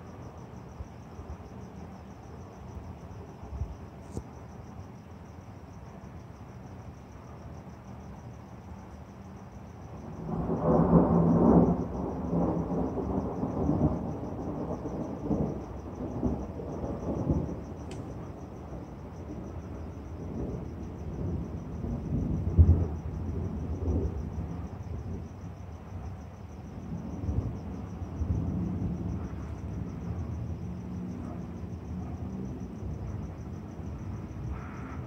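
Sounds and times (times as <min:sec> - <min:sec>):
thunder rumbling: 0:10.0 - 0:26.1, 0:26.7 - 0:35.0.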